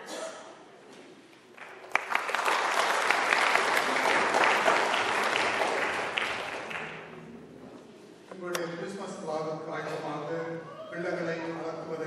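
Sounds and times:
crowd applauding: 1.6 - 7.2.

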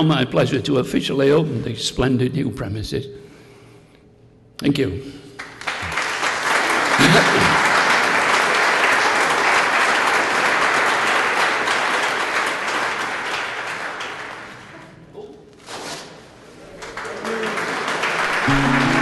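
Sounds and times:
audience applauding: 5.4 - 14.8, 16.8 - 19.0.

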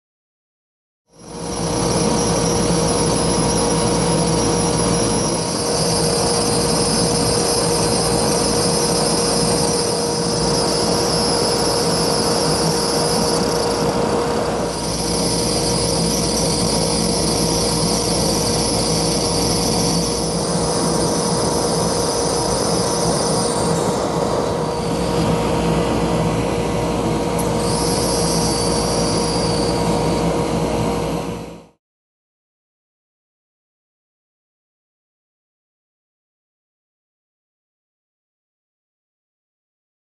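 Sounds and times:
router spindle whining: 1.2 - 31.4
hiss of cutting plastic: 27.4 - 29.8.

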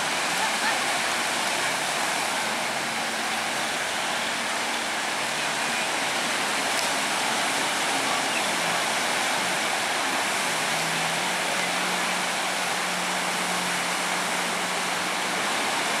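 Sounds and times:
faint low boat engine hum: 0.0 - 16.0
sea surf rushing: 0.0 - 16.0.

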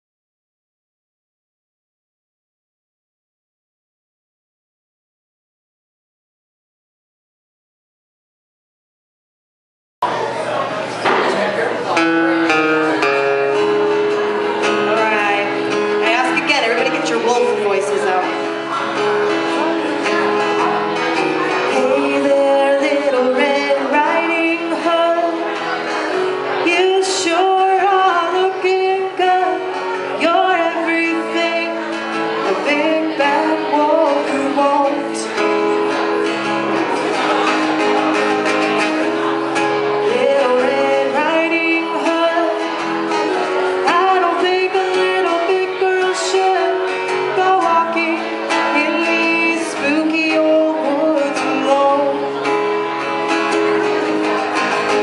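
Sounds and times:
acoustic guitar strumming: 10.1 - 55.0
woman singing: 21.6 - 25.6, 26.6 - 35.4, 40.0 - 42.9, 43.8 - 52.5.

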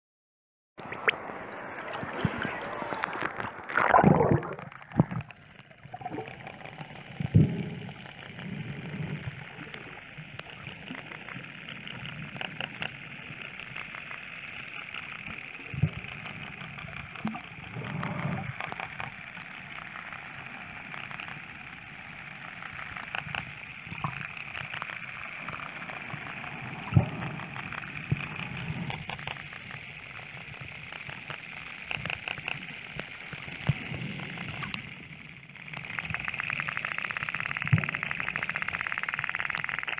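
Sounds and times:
faint clicks: 0.8 - 39.9
water sloshing underwater: 0.8 - 39.9.

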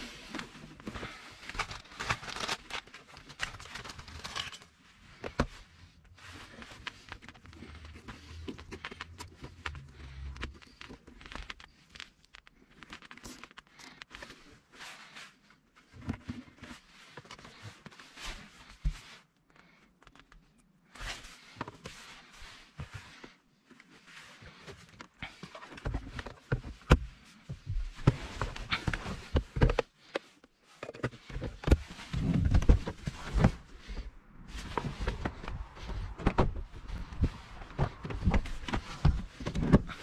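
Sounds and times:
rustling and crinkling of wiring: 0.0 - 40.0.

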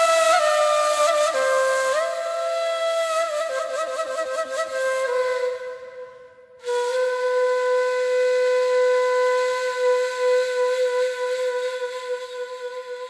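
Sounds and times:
reed flute long breathy note: 0.0 - 13.0.

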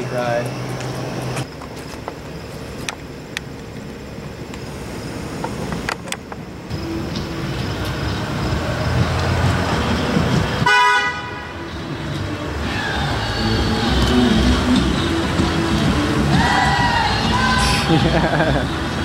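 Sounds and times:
car approaching: 0.0 - 19.0
short car horn honk: 10.6 - 11.5.

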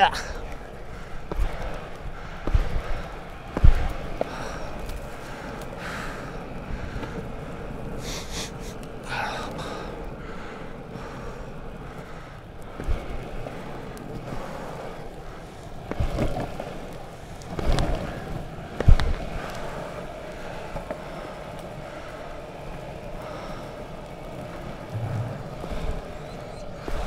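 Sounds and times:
longboard wheels rolling on asphalt: 0.0 - 27.0
wind on microphone: 24.9 - 27.0.

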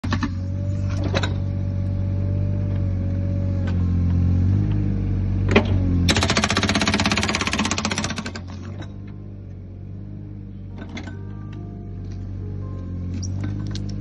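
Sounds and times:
diesel engine running: 0.0 - 14.0
hydraulic whine: 0.0 - 14.0
hydraulic breaker hammering brick: 5.5 - 8.8.

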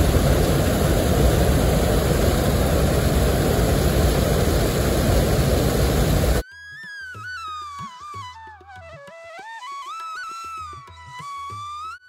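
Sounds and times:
water rushing over spillway: 0.0 - 6.4.

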